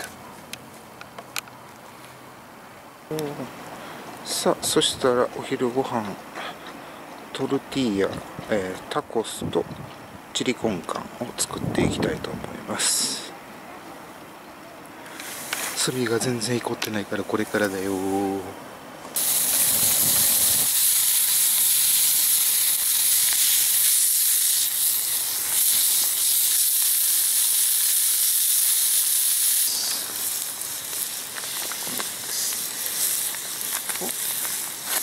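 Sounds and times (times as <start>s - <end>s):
meat sizzling in a frying pan: 19.2s - 35.0s
small crackles: 19.2s - 35.0s.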